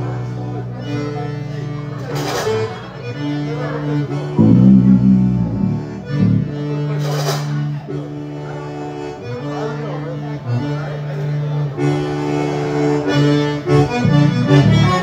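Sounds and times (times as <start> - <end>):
accordion chords: 0.0 - 15.0
live band playing: 4.4 - 7.5.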